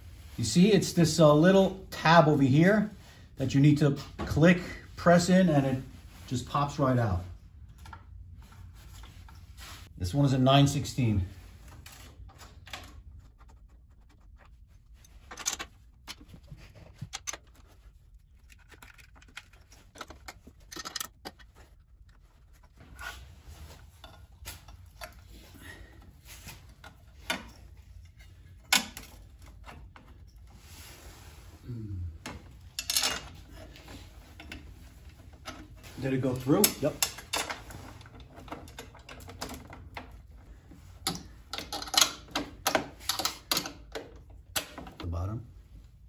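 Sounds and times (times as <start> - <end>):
metal and plastic parts handled: 11.6 - 25.4, 32.3 - 45.1.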